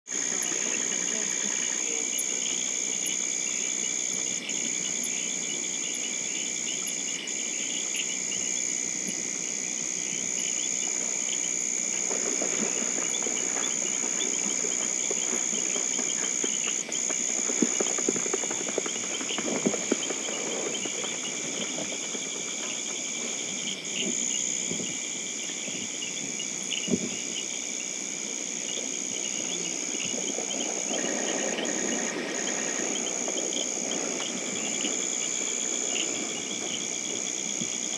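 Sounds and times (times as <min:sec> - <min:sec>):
high-pitched insect-like trilling: 0:00.1 - 0:37.9.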